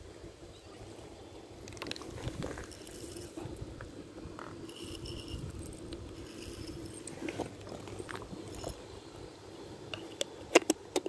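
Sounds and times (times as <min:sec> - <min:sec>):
low background hum: 0:00.0 - 0:11.0
cats crunching dry kibble: 0:01.6 - 0:08.9.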